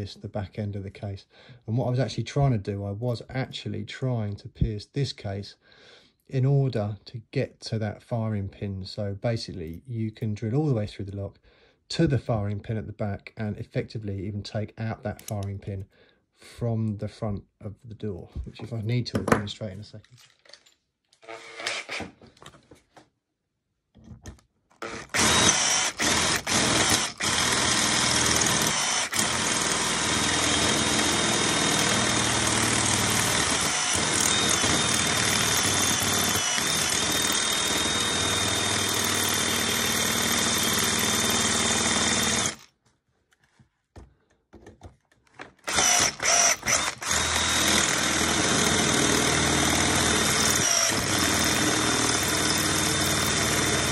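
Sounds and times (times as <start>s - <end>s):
cordless drill boring into metal: 24.8s - 42.7s, 45.6s - 53.9s.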